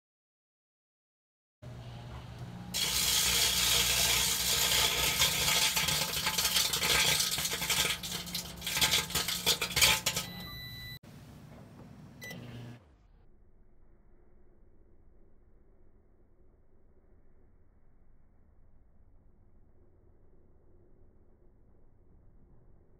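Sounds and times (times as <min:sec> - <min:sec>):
microwave oven humming: 0:01.6 - 0:12.9
beep-like tone: 0:10.1 - 0:11.0.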